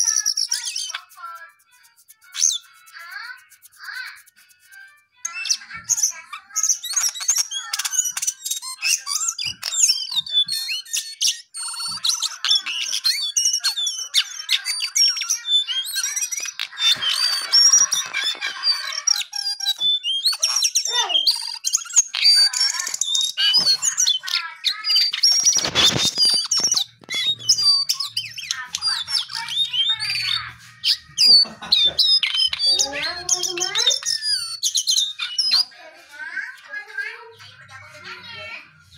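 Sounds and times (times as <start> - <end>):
bird singing: 0.0 - 35.8.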